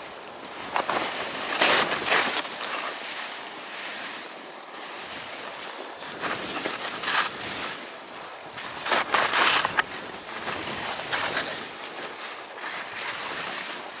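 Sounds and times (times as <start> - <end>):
skis scraping over snow: 0.0 - 14.0
wind on microphone: 4.2 - 14.0.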